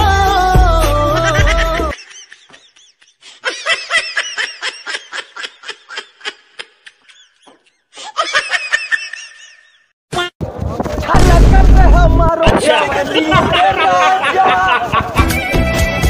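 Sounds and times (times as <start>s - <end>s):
background music: 0.0s - 2.0s, 13.3s - 16.0s
high-pitched laughter: 1.1s - 10.3s, 13.1s - 15.7s.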